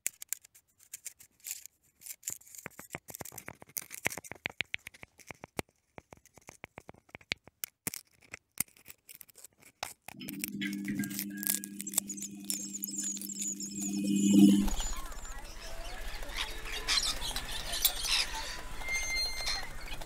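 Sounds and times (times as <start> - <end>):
small clicks and crackles: 0.0 - 14.6.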